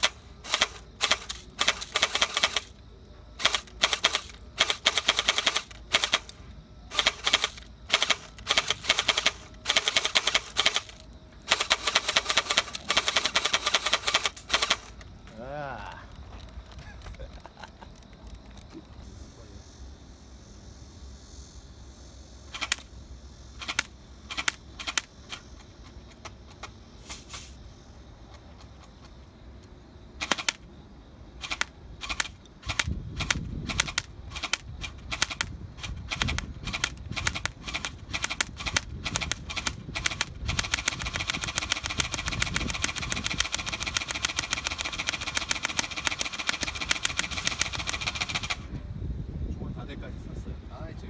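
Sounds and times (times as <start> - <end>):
airsoft gun firing: 0.0 - 2.8, 3.4 - 6.3, 6.9 - 14.9, 22.5 - 22.9, 30.2 - 30.6, 31.4 - 35.5, 36.1 - 48.6.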